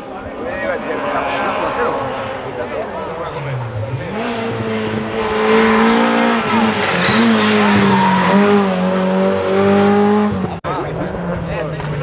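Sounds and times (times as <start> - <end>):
rally car engine at high revs: 0.3 - 12.0
tyre noise: 2.8 - 10.6.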